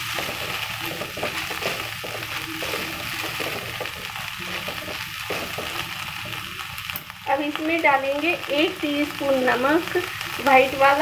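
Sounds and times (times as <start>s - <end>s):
corn sizzling in butter: 0.0s - 11.0s
spatula scraping and rattling: 0.2s - 5.8s.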